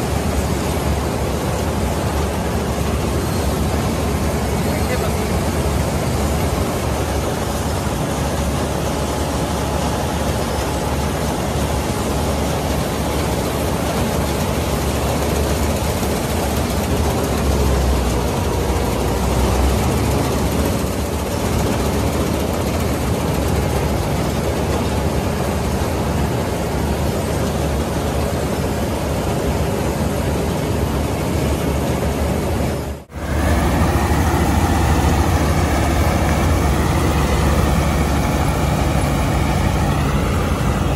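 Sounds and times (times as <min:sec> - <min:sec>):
combine harvester running: 0:00.0 - 0:40.9
wavering engine note: 0:33.1 - 0:40.9.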